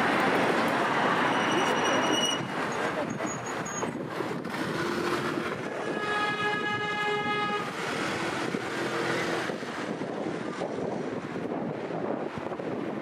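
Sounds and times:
street traffic: 0.0s - 13.0s
vehicle horns: 5.6s - 7.8s.

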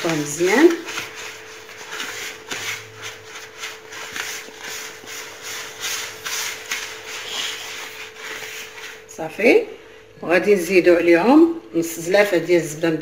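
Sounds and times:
hand rubbing dry flour in bowl: 0.0s - 9.2s.

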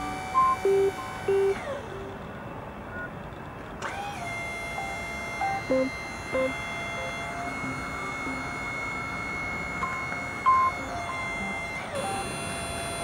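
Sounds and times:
hydraulic pump motor whine: 3.8s - 13.0s
short tones: 4.8s - 9.2s.

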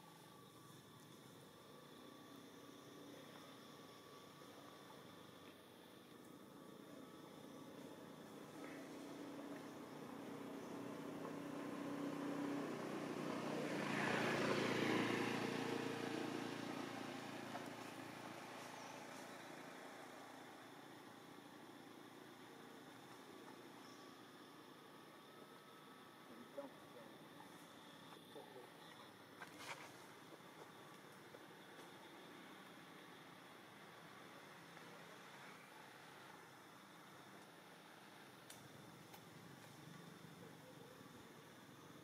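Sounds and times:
faint steady hiss: 0.0s - 42.0s
vehicle passing by: 10.3s - 19.8s
tiny ticks: 38.5s - 39.8s.

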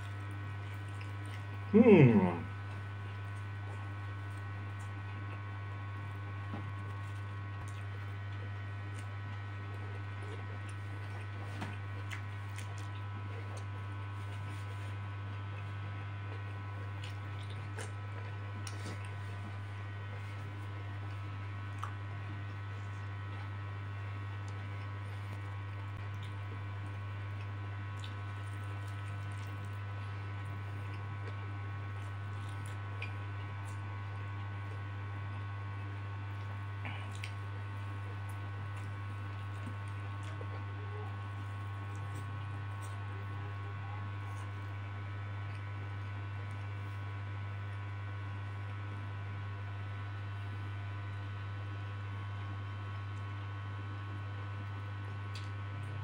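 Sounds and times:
man chewing noodles: 0.0s - 43.1s
low electrical hum: 0.0s - 56.0s.

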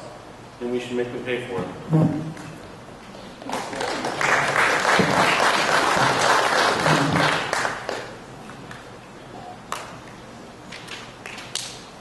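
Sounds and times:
audience clapping: 3.4s - 8.8s.

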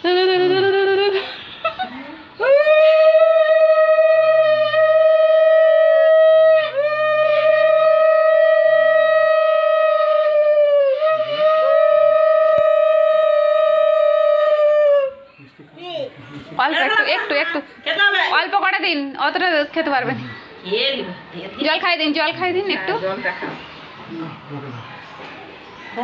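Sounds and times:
wavering vocal call: 0.0s - 15.6s.

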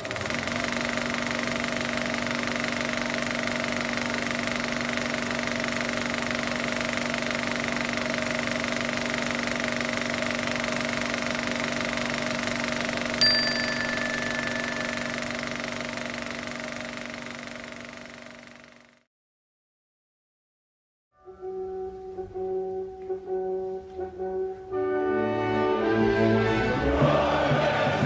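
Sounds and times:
mechanical running hum: 0.0s - 19.0s
bright ringing hit: 13.2s - 15.7s.

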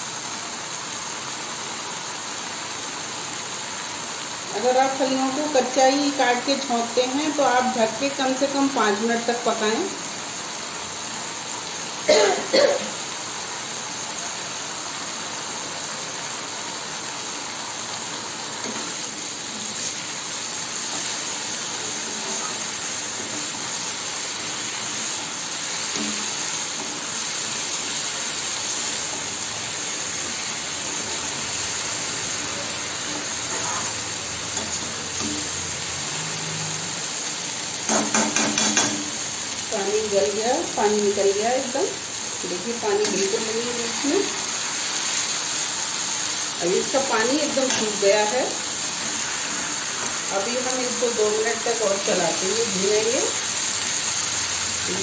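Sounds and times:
beans sizzling in pan: 0.0s - 55.0s
spatula scraping pan: 20.8s - 24.0s, 32.0s - 35.7s, 37.9s - 39.2s.

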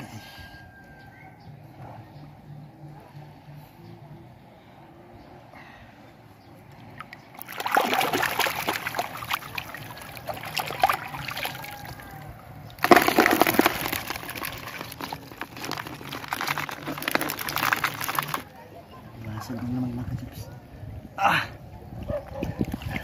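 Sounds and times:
seawater sloshing and splashing: 7.0s - 12.0s, 12.8s - 18.5s.

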